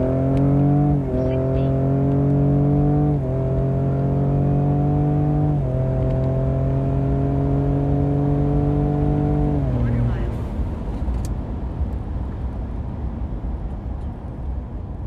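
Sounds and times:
engine accelerating at full throttle: 0.0s - 10.5s.

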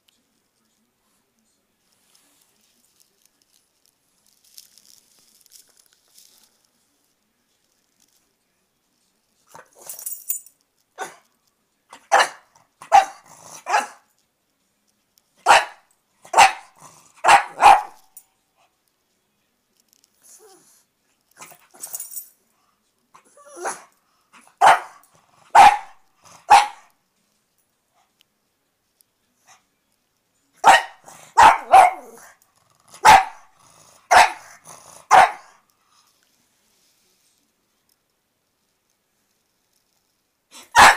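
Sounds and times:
dog barking: 12.0s - 14.0s, 15.4s - 18.1s, 23.6s - 26.9s, 30.6s - 32.3s, 32.9s - 33.5s, 34.1s - 35.6s, 40.7s - 40.9s.

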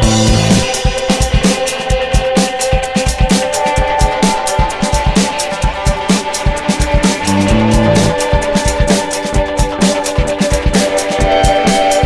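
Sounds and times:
quick drum beat: 4.5s - 9.0s
held synth notes: 7.2s - 8.2s.

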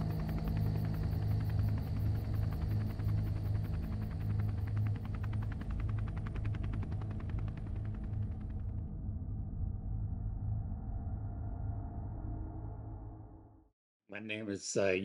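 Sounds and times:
helicopter rotor chop: 0.0s - 9.0s.

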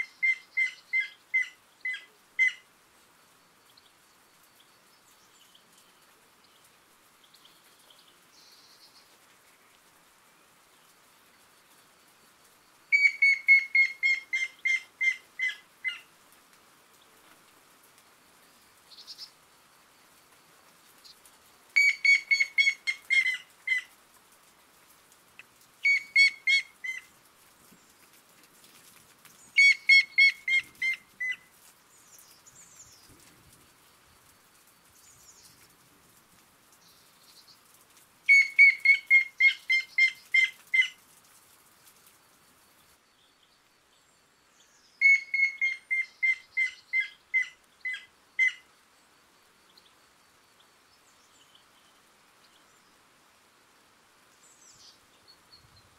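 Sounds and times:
woodpecker whistled notes: 12.9s - 15.2s, 21.8s - 23.4s, 25.8s - 27.0s, 29.6s - 31.4s, 38.3s - 40.9s, 45.0s - 48.6s.

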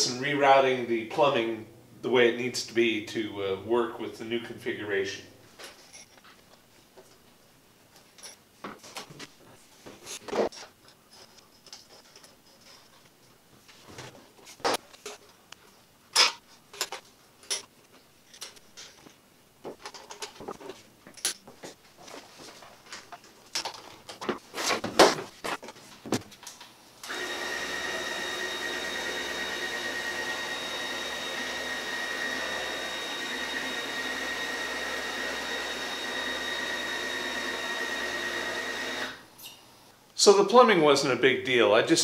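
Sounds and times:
vacuum running with high whine: 27.0s - 39.2s.

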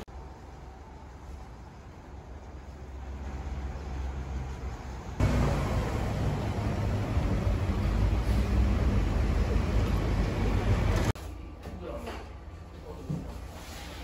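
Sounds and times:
road traffic: 0.0s - 11.6s
vehicle engine running close: 3.1s - 11.2s.

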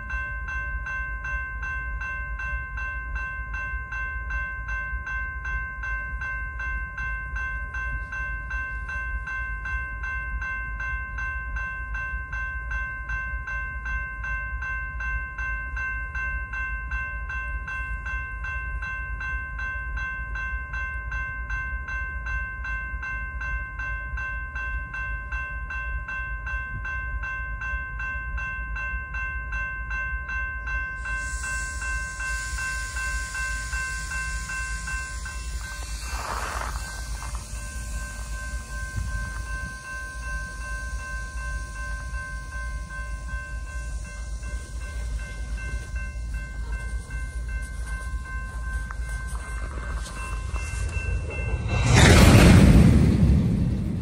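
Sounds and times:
railroad crossing bell ringing: 0.0s - 52.1s
hiss: 31.0s - 46.7s
low rumble: 41.5s - 54.0s.

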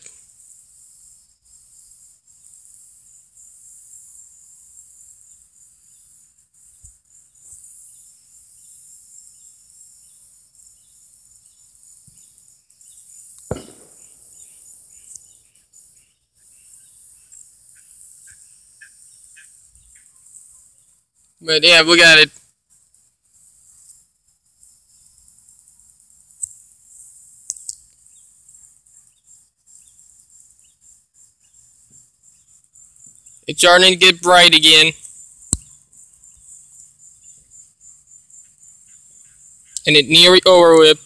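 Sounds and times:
insects pulsing chorus: 0.0s - 41.0s
handling knock: 13.5s - 14.1s.

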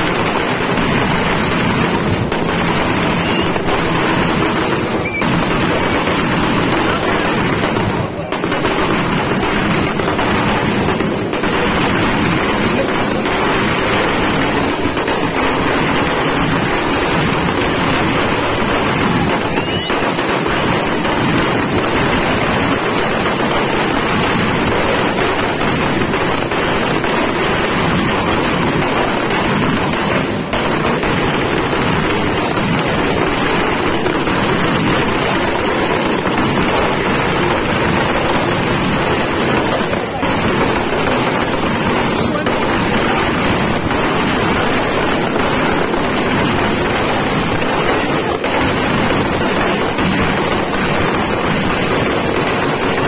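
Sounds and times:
firework fountains hissing: 0.0s - 53.0s.

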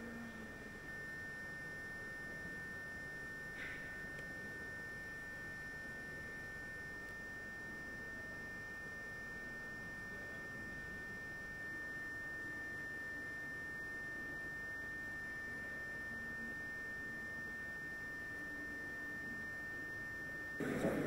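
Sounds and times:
high-pitched electronic whine: 15.7s - 21.0s.

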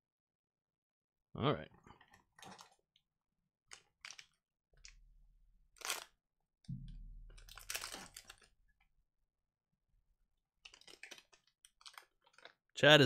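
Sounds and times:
plastic foil wrapper crinkling: 2.0s - 2.8s, 3.7s - 5.0s, 5.7s - 6.2s, 7.3s - 8.6s, 10.6s - 12.7s.

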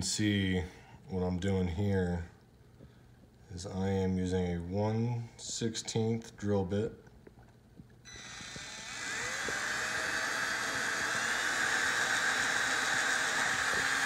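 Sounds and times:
electric drill whining: 8.1s - 14.0s.

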